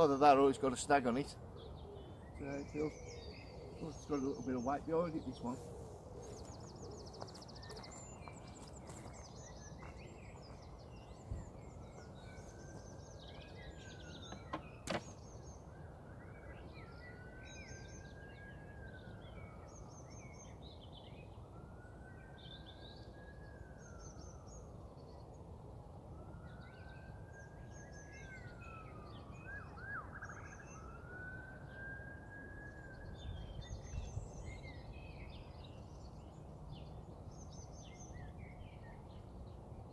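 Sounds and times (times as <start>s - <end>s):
small birds chirping: 0.0s - 25.6s, 32.6s - 39.9s
faint wailing siren: 15.6s - 37.3s.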